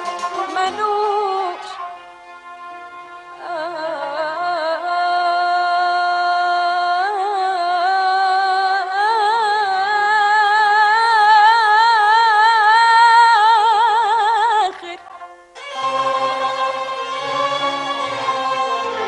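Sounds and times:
woman singing wordless melody: 0.0s - 2.0s, 3.3s - 15.1s.

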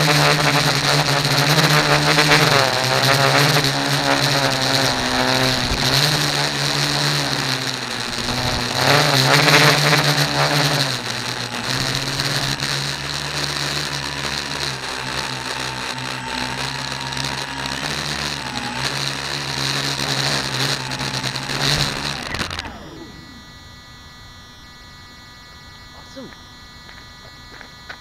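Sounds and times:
drone motors buzzing hum: 0.0s - 28.0s.

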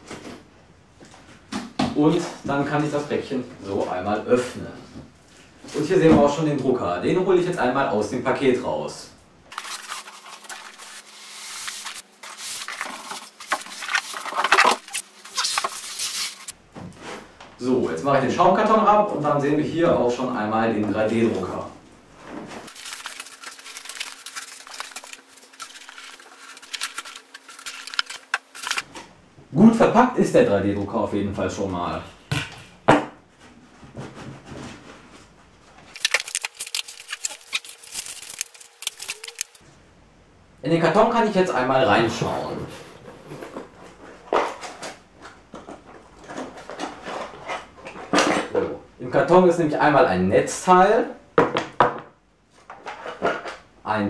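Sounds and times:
packing material rustling and crinkling: 9.5s - 16.6s, 22.4s - 28.9s, 35.9s - 39.6s
cardboard and foam scraping: 9.5s - 17.3s.

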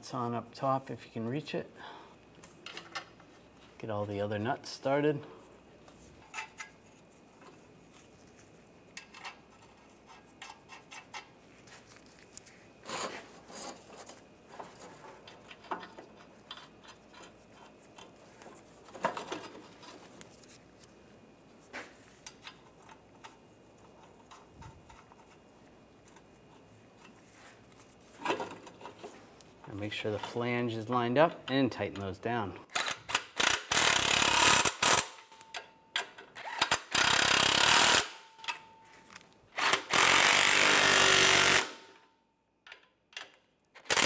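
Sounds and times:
nuts threaded onto studs: 5.9s - 8.1s, 8.9s - 11.4s, 12.8s - 20.2s, 22.0s - 30.4s.

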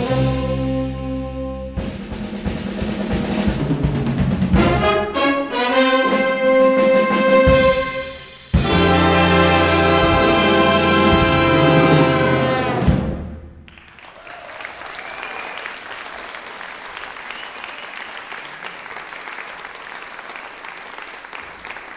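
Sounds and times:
audience applauding: 13.7s - 21.9s.

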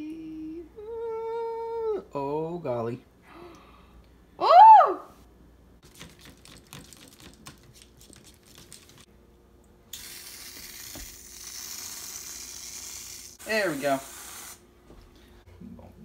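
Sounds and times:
aerosol can spraying hiss: 10.0s - 14.6s.

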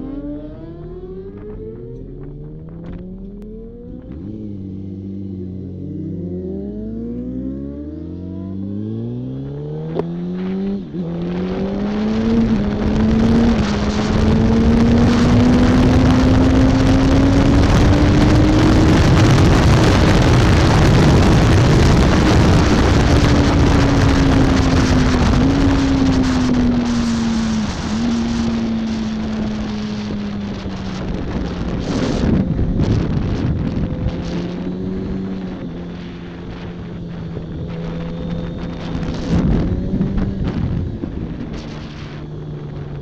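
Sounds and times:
motorcycle engine accelerating: 0.0s - 43.0s
wind rush over microphone: 8.6s - 43.0s.

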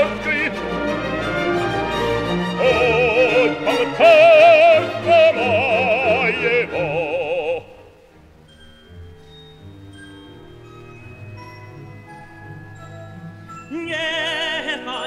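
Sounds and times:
operatic singing: 0.0s - 8.0s, 13.7s - 15.0s
orchestral music: 0.0s - 15.0s.

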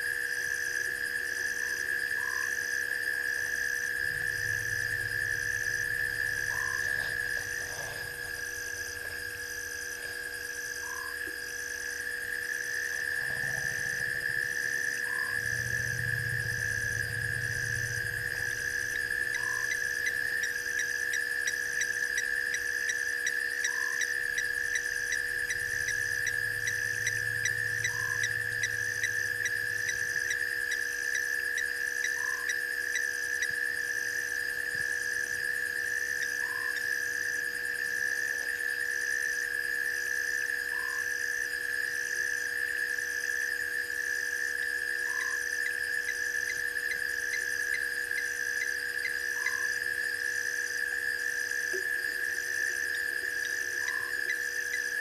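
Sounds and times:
higher pulsing chirp: 4.1s - 8.4s, 13.2s - 33.5s, 45.0s - 49.8s, 53.4s - 55.0s
short lower frog call: 4.1s - 8.4s, 13.2s - 22.6s, 23.2s - 33.6s.

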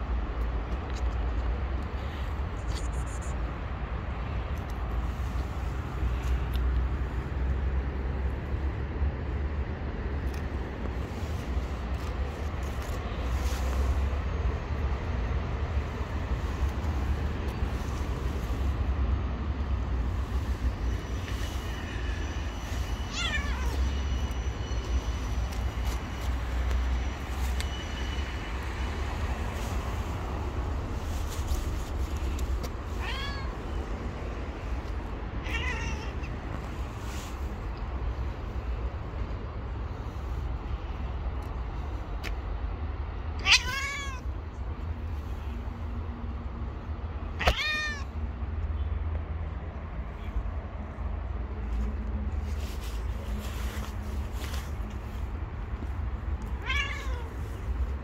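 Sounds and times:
cat meowing: 23.1s - 24.0s, 32.8s - 33.7s, 35.4s - 36.4s, 43.4s - 44.3s, 47.4s - 48.2s, 56.5s - 57.6s.

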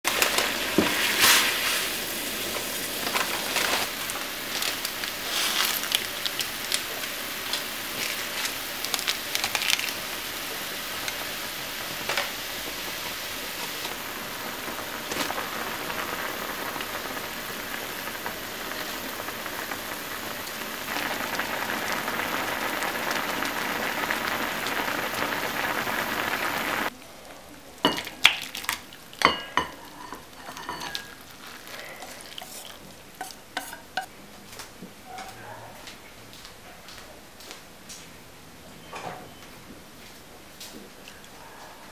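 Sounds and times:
water boiling hard: 0.0s - 26.9s.

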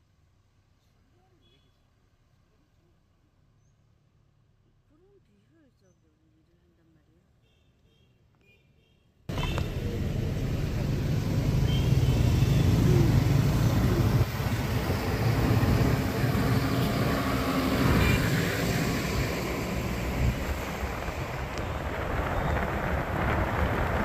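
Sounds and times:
road traffic rumble: 9.3s - 24.0s.

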